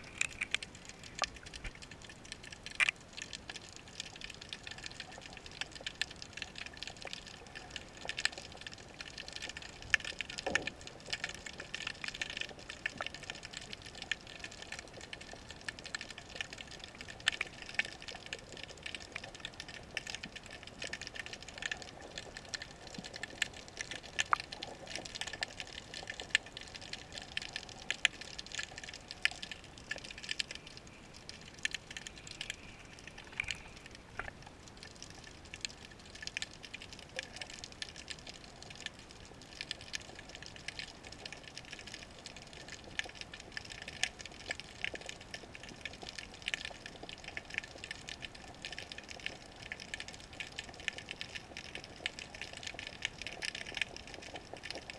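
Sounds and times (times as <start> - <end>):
sharp underwater clicks: 0.0 - 8.4, 9.4 - 39.0
dense underwater crackle: 0.0 - 54.9.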